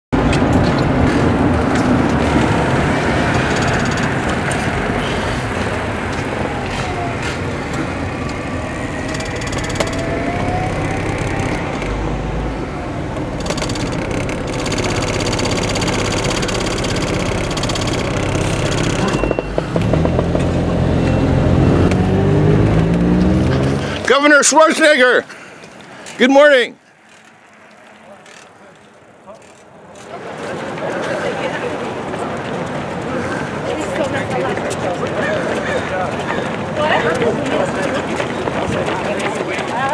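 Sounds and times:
car engine and road rumble: 0:00.2 - 0:30.6
rising drone: 0:00.8 - 0:24.1.

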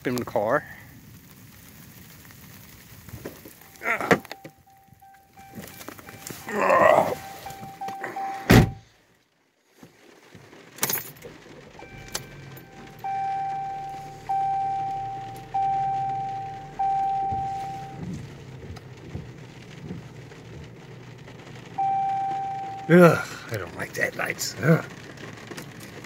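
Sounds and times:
car warning chime dinging: 0:03.6 - 0:08.8, 0:11.7 - 0:18.1, 0:21.6 - 0:23.4
car door shutting: 0:04.0 - 0:04.6, 0:05.5 - 0:08.8, 0:11.8 - 0:18.3.

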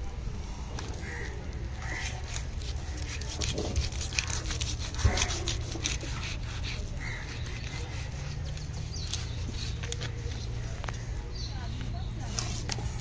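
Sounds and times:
cleaver cutting through fish: 0:01.8 - 0:10.2.

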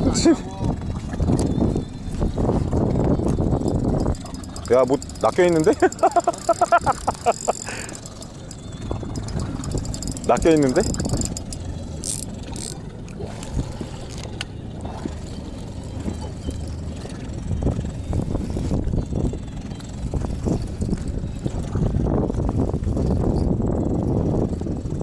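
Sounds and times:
wind rumble: 0:00.7 - 0:14.2, 0:14.8 - 0:25.0.

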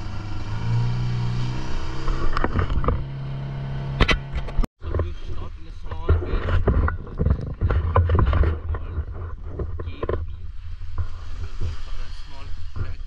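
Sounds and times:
camera handling knocks and rustles: 0:06.0 - 0:10.2.

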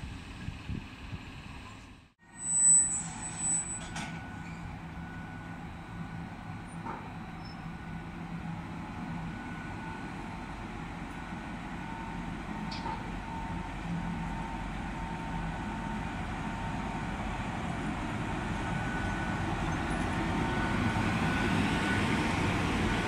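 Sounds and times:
electric locomotive humming: 0:00.0 - 0:23.0
high-pitched squeal: 0:02.2 - 0:04.8.

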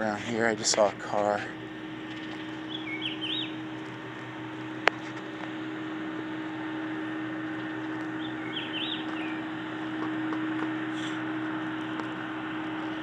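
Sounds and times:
constant hum: 0:00.0 - 0:13.0
bird chirping: 0:02.1 - 0:03.6, 0:08.2 - 0:09.5.

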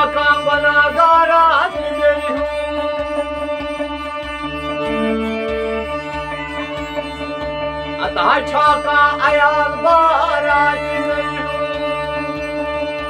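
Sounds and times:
man singing: 0:00.0 - 0:02.6, 0:08.0 - 0:12.0
harmonium chords: 0:00.0 - 0:13.0.

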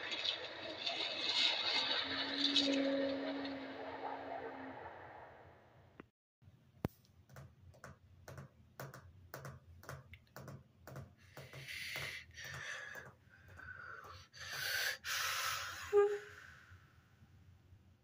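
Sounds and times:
hiss: 0:14.4 - 0:15.9.

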